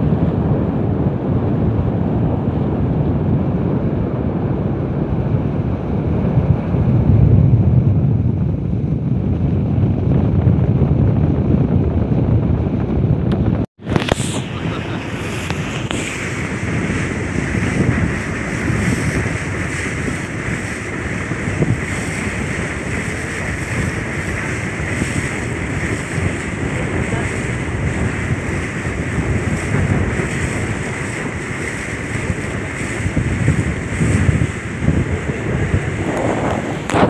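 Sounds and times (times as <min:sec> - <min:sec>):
wind buffeting microphone: 0:00.0 - 0:37.0
boat engine running: 0:05.0 - 0:37.0
rushing water: 0:13.8 - 0:37.0.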